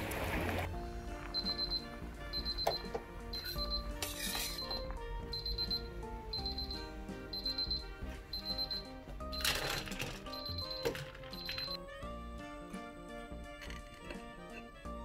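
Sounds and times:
background music: 0.0s - 15.0s
kitchen timer alarm beeping: 1.4s - 11.8s.

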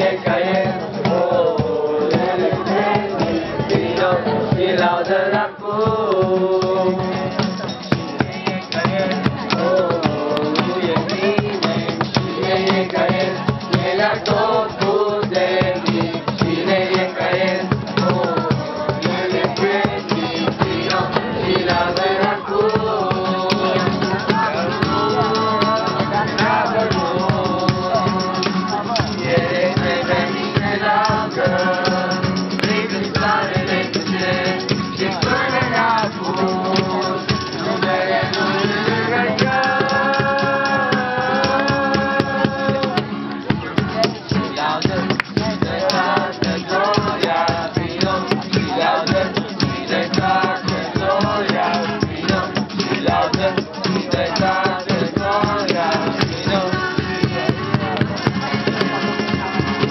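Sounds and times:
acoustic guitar: 0.0s - 59.9s
cajon beating rhythm: 0.0s - 59.9s
voices singing together: 0.0s - 59.9s.

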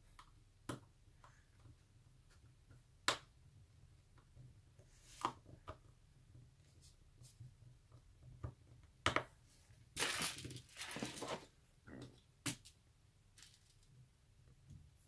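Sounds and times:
rustling: 10.0s - 11.6s.

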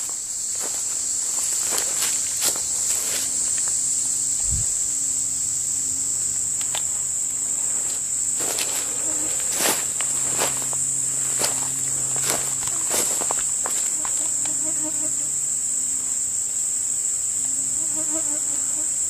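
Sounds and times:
footsteps on gravel: 0.0s - 3.7s, 7.6s - 14.4s
high-pitched insect drone: 0.0s - 19.0s.

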